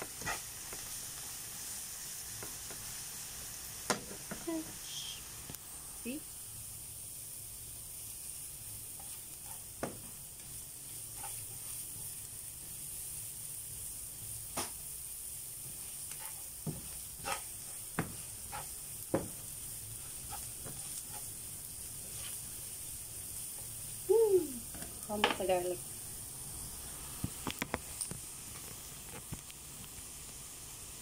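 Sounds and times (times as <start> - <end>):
onion and garlic sizzling in oil: 0.0 - 31.0
spatula knocking and scraping pan: 9.0 - 10.2, 15.6 - 21.4.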